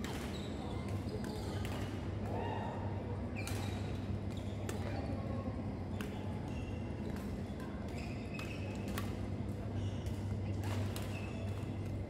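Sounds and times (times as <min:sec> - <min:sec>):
shoes squeaking on hall floor: 0:00.3 - 0:01.6, 0:06.1 - 0:07.0, 0:09.7 - 0:10.0
rackets hitting shuttlecock: 0:08.4 - 0:09.2.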